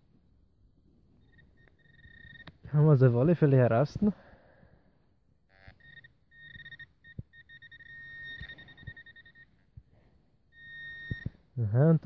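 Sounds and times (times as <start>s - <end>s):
pinpointer beeping: 1.2s - 2.6s, 5.5s - 9.8s, 10.5s - 11.5s.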